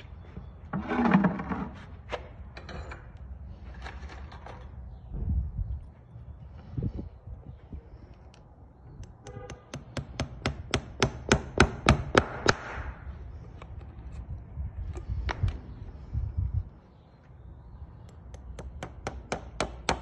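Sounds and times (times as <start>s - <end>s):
hammer tapping horseshoe nails: 9.0s - 12.7s, 18.1s - 20.0s.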